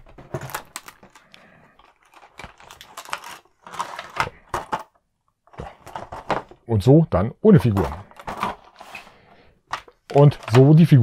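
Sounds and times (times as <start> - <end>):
plastic packaging crackling: 0.0 - 5.0.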